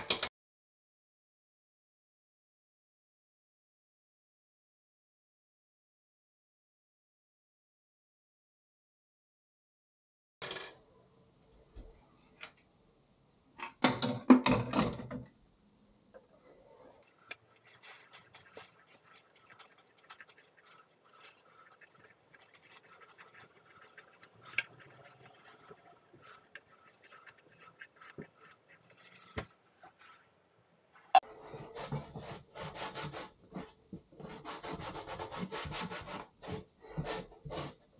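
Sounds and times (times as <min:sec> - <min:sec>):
scraping and scratching: 0:16.8 - 0:30.4
plastic bag rustling: 0:17.0 - 0:29.4.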